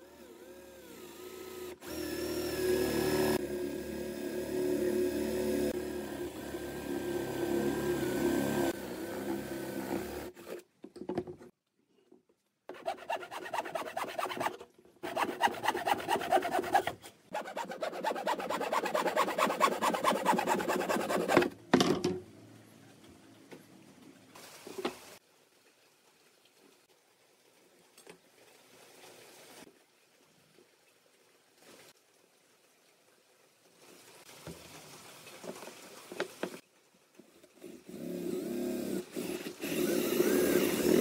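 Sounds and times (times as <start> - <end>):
electric drill boring wood: 0.0 - 10.6, 12.8 - 21.5, 37.9 - 41.0
hand saw cutting wood: 0.8 - 10.6, 12.7 - 21.6, 37.6 - 41.0.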